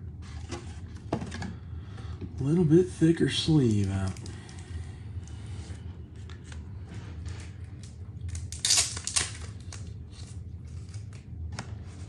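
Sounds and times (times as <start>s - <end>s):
wrapper crinkle: 7.3s - 11.4s.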